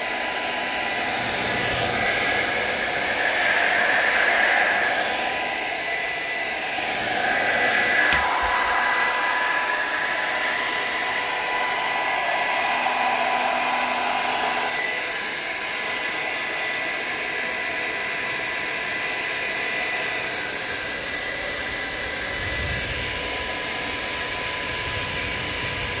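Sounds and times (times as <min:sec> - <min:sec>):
high motor whine: 0:00.0 - 0:15.8
hair dryer blowing air: 0:00.0 - 0:26.0.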